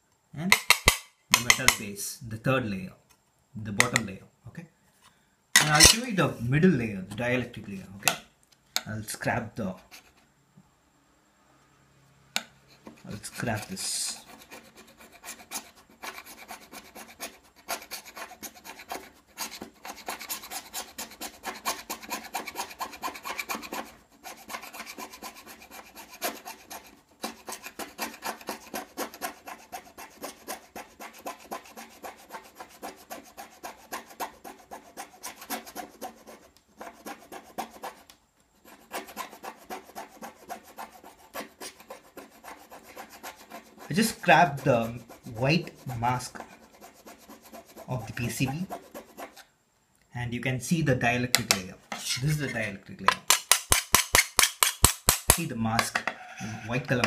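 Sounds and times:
rasping scraping strokes: 12.7s - 49.5s, 51.9s - 53.4s.

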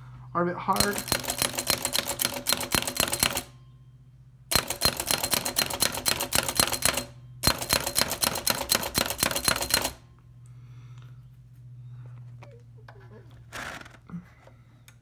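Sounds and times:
typewriter keystrokes clattering: 0.8s - 3.5s, 4.5s - 10.0s.

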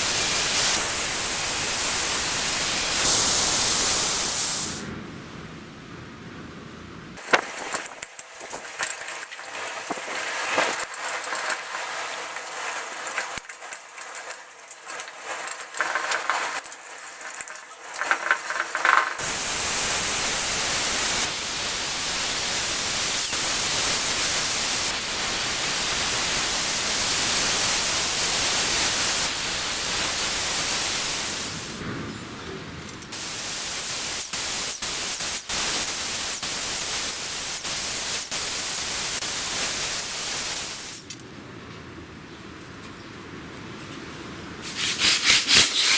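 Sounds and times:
hand filing wood: 44.6s - 45.9s.

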